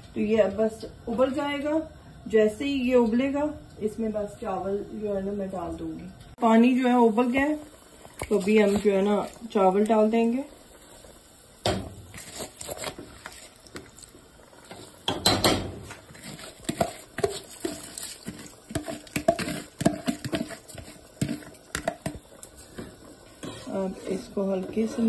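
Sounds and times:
rice dropping into boiling water: 8.0s - 10.0s, 11.6s - 23.5s.

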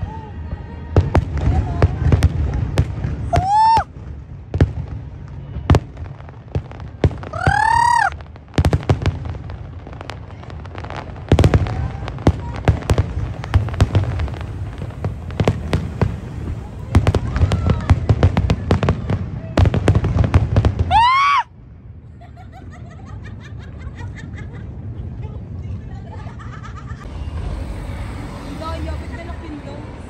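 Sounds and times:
fireworks bangs: 0.4s - 21.2s, 26.8s - 30.0s
low rumble: 11.6s - 19.3s, 26.4s - 30.0s
high rising whistles: 27.1s - 29.3s.

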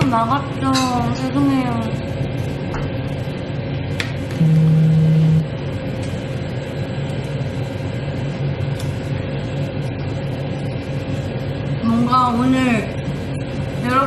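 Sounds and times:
machinery humming: 0.0s - 14.0s
flat low tone: 4.4s - 5.5s.

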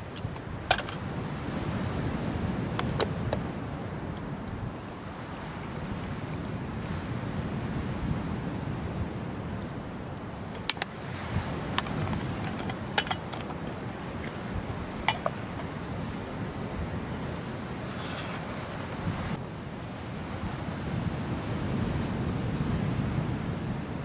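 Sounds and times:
sea waves: 0.0s - 24.0s
wind: 0.0s - 24.0s
metal pot lid clinking: 11.8s - 13.5s, 15.1s - 15.4s.

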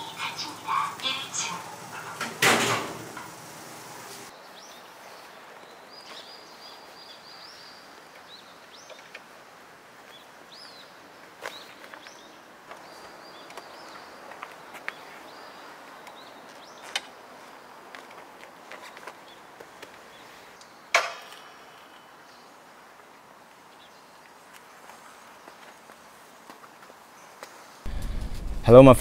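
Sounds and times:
faint outdoor background noise: 0.0s - 29.0s
small birds chirping: 4.3s - 9.4s, 10.0s - 22.8s.

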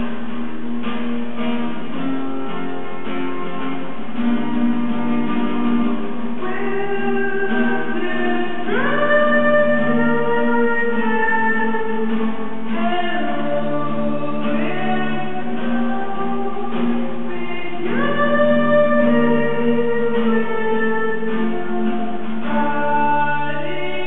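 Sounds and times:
acoustic guitar strumming: 0.0s - 24.0s
man singing: 6.4s - 24.0s.

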